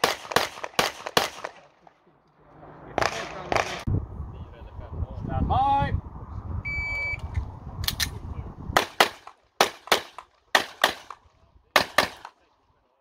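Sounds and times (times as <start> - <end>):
pistol shots: 0.0 - 1.7, 3.0 - 3.8, 8.8 - 11.2, 11.8 - 12.4.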